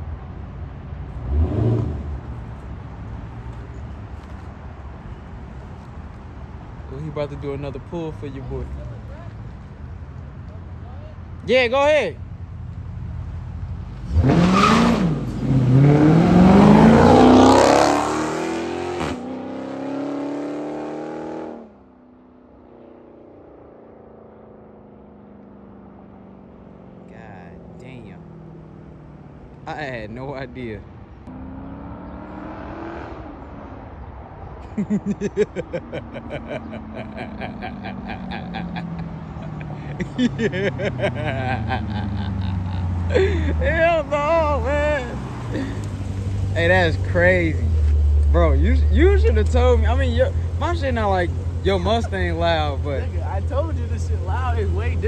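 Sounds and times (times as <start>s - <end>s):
car engine revving at full throttle: 1.2s - 2.3s, 14.0s - 21.7s, 31.3s - 33.6s, 35.4s - 55.0s
distant engine drone: 34.8s - 55.0s.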